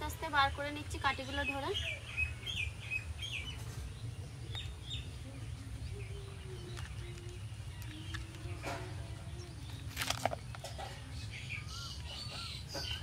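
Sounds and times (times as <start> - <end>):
plastic cup crackling and clicking: 6.6 - 8.9, 9.6 - 11.0.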